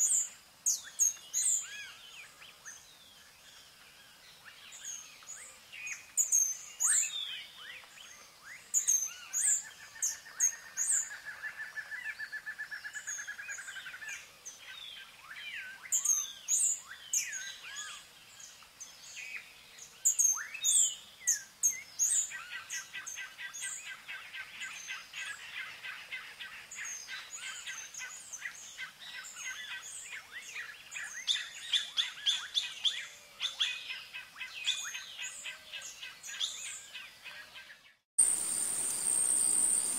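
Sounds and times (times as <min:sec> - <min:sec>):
songbirds chirping: 0:00.0 - 0:39.9
bird trill: 0:38.2 - 0:39.9.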